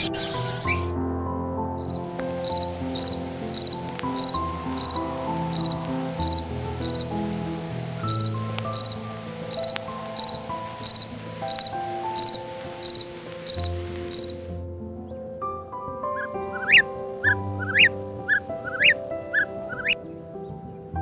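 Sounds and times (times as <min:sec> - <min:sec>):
soft background music: 0:00.0 - 0:21.0
cricket chirping: 0:01.8 - 0:07.2, 0:08.0 - 0:14.5, 0:16.2 - 0:20.9.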